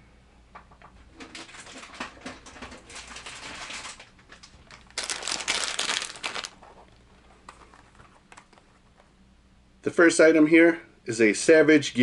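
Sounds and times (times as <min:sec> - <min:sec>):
plastic packaging crinkling: 0:01.4 - 0:09.1.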